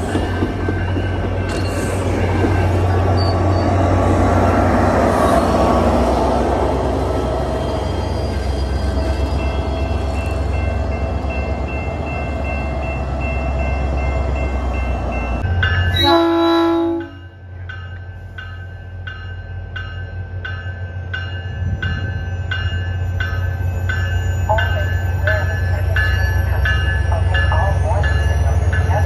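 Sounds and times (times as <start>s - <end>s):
train bell ringing: 0.0s - 4.6s, 7.5s - 29.0s
diesel locomotive engine rumble: 0.0s - 29.0s
train horn blast: 15.9s - 17.2s.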